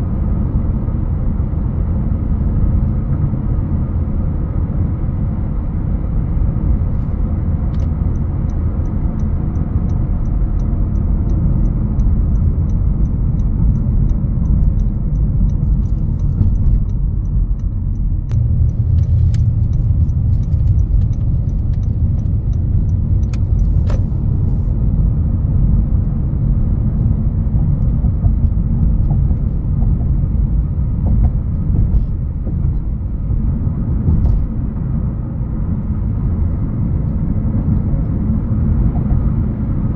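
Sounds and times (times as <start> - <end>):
road and engine rumble: 0.0 - 39.9
light regular ticking: 7.8 - 24.1.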